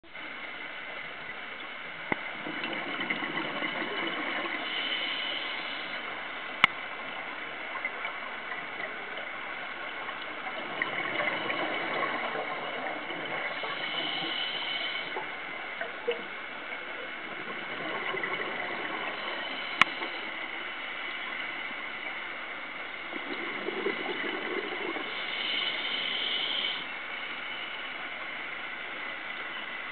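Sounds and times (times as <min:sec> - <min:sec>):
bubbles gurgling underwater: 0:02.3 - 0:04.6, 0:10.2 - 0:14.3, 0:17.1 - 0:19.4, 0:23.1 - 0:25.1
diver breathing through regulator: 0:04.5 - 0:06.1, 0:13.4 - 0:15.2.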